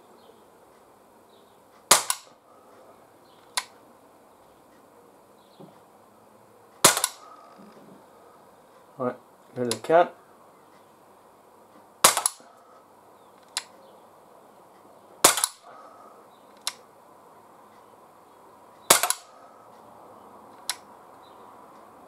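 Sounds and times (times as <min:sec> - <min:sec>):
air pistol shots: 0:01.9 - 0:02.4, 0:06.8 - 0:07.4, 0:12.0 - 0:12.5, 0:15.2 - 0:15.8, 0:18.9 - 0:19.4.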